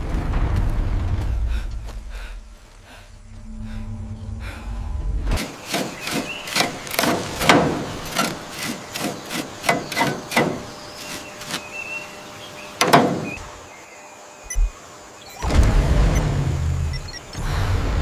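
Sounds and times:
low rumble: 0:00.0 - 0:05.4.

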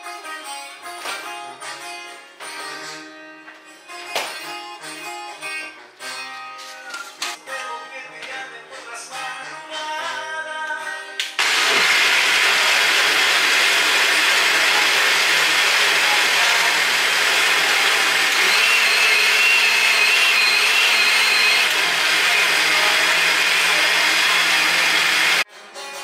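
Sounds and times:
electric blender running: 0:11.4 - 0:25.4.

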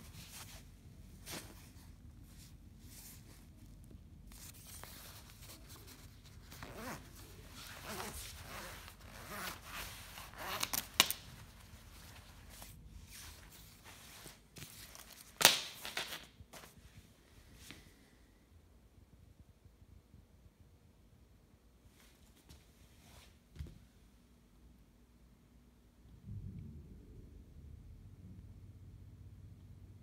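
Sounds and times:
nylon jacket rustling: 0:00.0 - 0:16.8.

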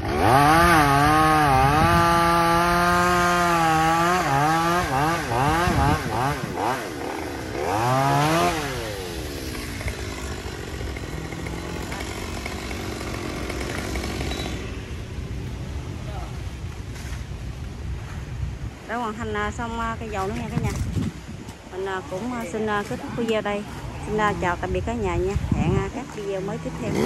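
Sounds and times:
chainsaw revving: 0:00.0 - 0:14.9, 0:26.7 - 0:27.0.

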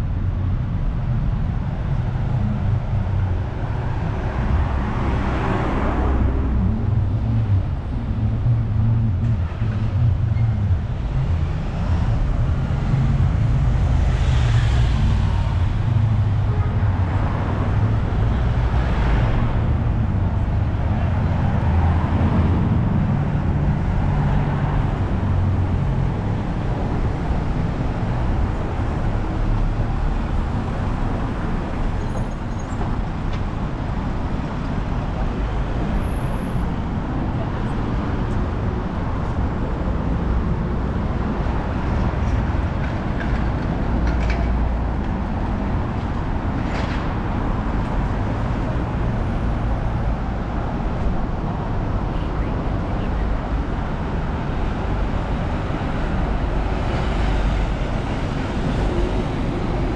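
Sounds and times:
low rumble of engines: 0:00.0 - 0:59.9
vehicles passing by: 0:00.0 - 0:59.9.

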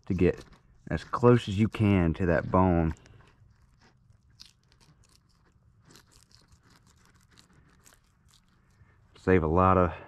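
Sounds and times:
knife crunching through fish: 0:02.6 - 0:08.8.

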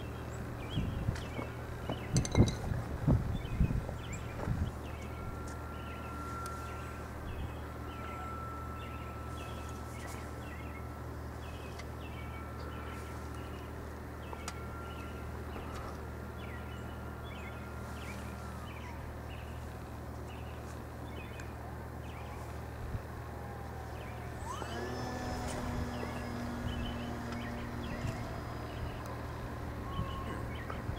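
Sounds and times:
low steady hum: 0:00.0 - 0:30.9
model plane motor whine: 0:03.2 - 0:10.6, 0:23.2 - 0:30.9
small birds chirping: 0:23.9 - 0:30.9.

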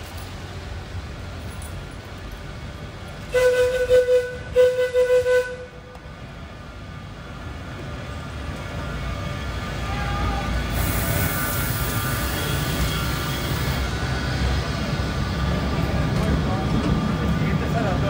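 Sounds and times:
train horn blasts: 0:03.3 - 0:05.8.

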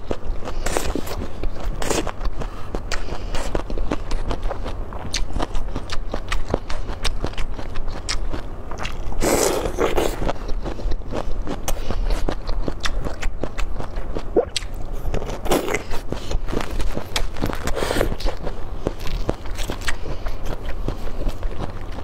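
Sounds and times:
wet chewing: 0:00.0 - 0:22.0
crunchy bite: 0:05.0 - 0:22.0.

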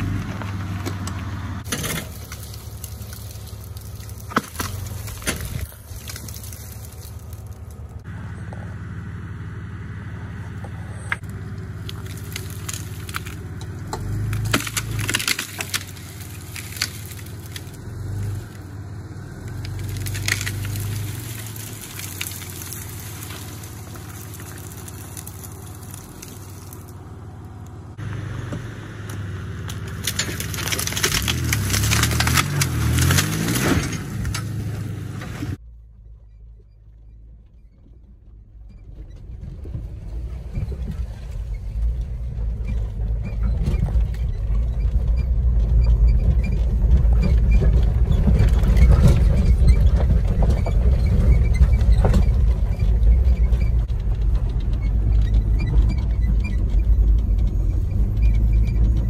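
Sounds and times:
branches cracking and snapping: 0:00.0 - 0:08.0, 0:11.2 - 0:27.8, 0:29.1 - 0:35.4
branches scraping over gravel: 0:01.6 - 0:08.0, 0:11.0 - 0:28.1, 0:29.7 - 0:35.6
car engine revving: 0:07.4 - 0:35.6.

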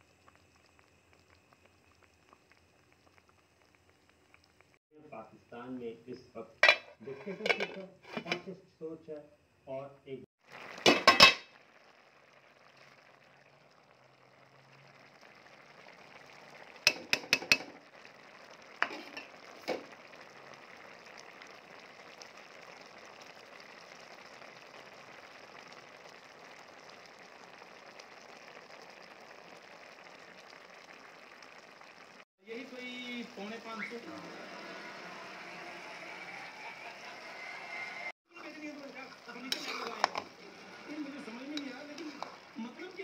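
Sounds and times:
pot boiling with bubbling hiss: 0:00.0 - 0:08.6, 0:10.2 - 0:43.0
pot lid clattering: 0:06.6 - 0:08.5, 0:10.9 - 0:11.5, 0:16.9 - 0:17.7.

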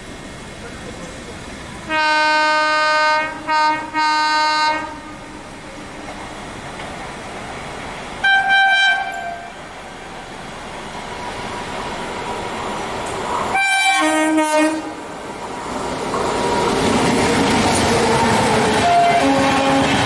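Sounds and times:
train passing close by: 0:00.0 - 0:20.0
locomotive horn blasts: 0:01.9 - 0:05.2, 0:08.2 - 0:09.6, 0:13.5 - 0:15.0, 0:18.8 - 0:20.0.

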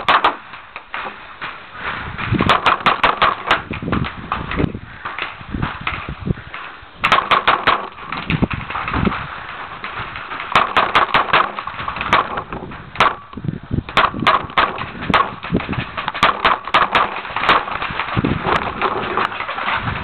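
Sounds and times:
paintball markers firing: 0:02.3 - 0:05.4, 0:07.0 - 0:09.1, 0:09.9 - 0:19.5.

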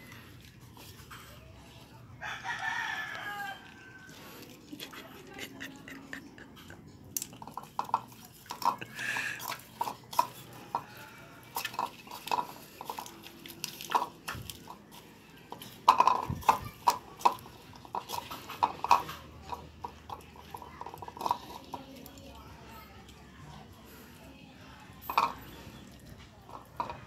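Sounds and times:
dog crunching lettuce: 0:07.0 - 0:22.4.

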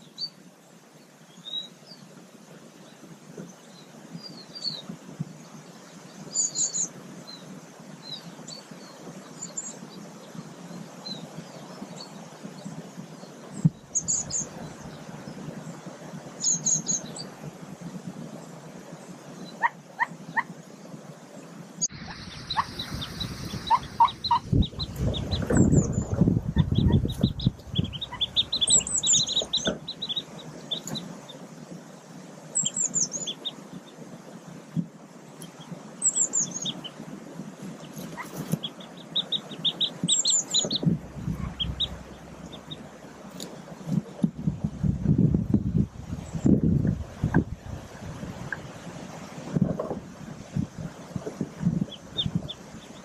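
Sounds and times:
high bird chirps: 0:21.8 - 0:31.4, 0:37.8 - 0:43.6
duck peeps: 0:22.0 - 0:31.1, 0:37.8 - 0:44.2
twigs and leaf litter rustling: 0:36.6 - 0:48.2.

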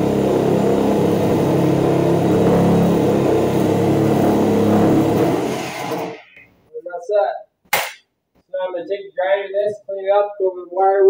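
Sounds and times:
reciprocating saw cutting sheet metal: 0:00.0 - 0:06.4.

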